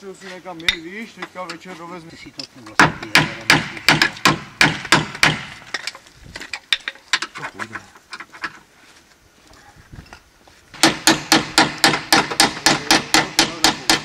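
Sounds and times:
hammer striking steel rod: 10.8s - 14.0s.

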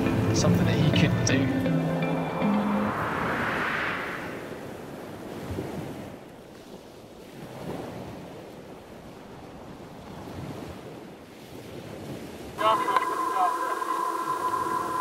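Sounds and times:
sea surf washing in: 0.0s - 15.0s
wind: 0.0s - 15.0s.

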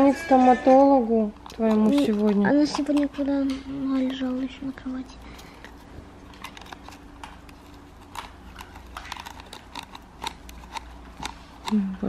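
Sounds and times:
fingers clicking on plastic toy car: 1.4s - 4.6s, 6.4s - 11.8s.

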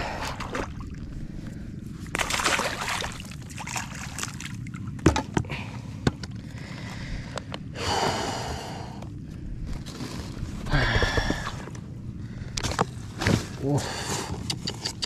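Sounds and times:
water sloshing and splashing: 0.0s - 5.7s.

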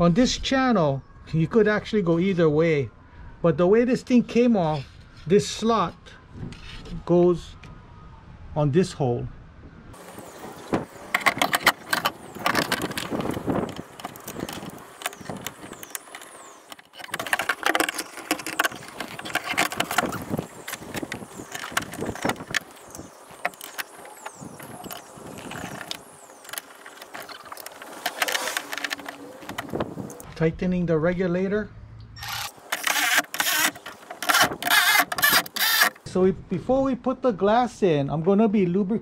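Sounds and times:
metal knocking and scraping: 11.1s - 22.7s.

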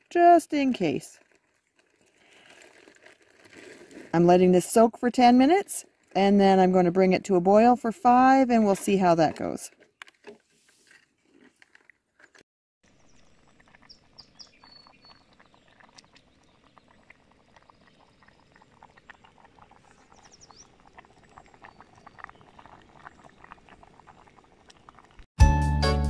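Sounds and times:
food boiling in a pot: 12.8s - 25.3s.

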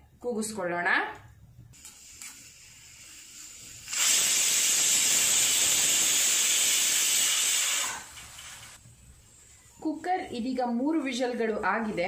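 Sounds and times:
pressure cooker whistle hissing: 1.9s - 8.1s.

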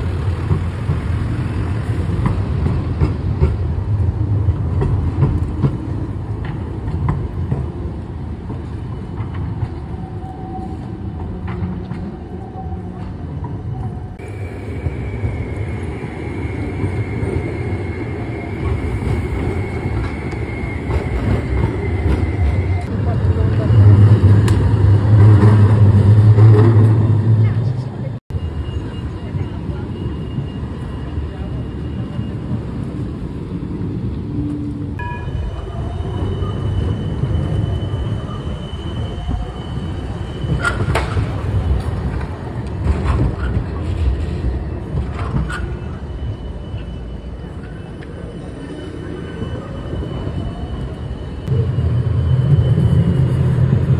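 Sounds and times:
tram rolling rumble: 0.0s - 53.9s.

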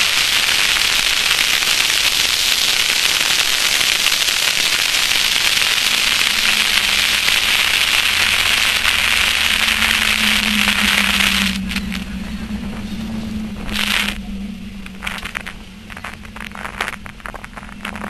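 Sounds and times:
car low hum: 8.8s - 18.0s.

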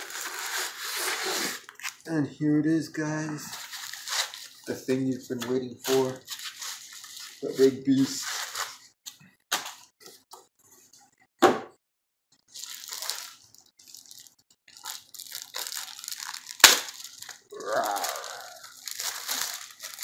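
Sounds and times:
plastic wrapping crinkling: 0.0s - 2.1s, 3.4s - 8.9s, 12.4s - 20.0s.

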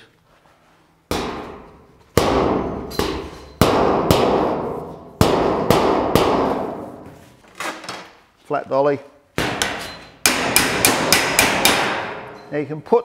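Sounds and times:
hammer striking steel panel: 1.1s - 7.0s, 9.4s - 12.4s.

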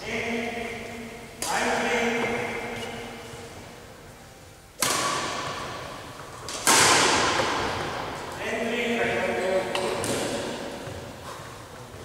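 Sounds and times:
racket striking shuttlecock: 4.8s - 8.1s, 9.7s - 11.1s.

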